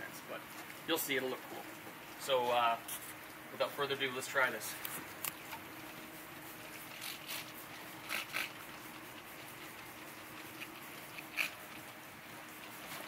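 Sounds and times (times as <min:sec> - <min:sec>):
spray bottle hissing squirts: 0:06.8 - 0:11.9.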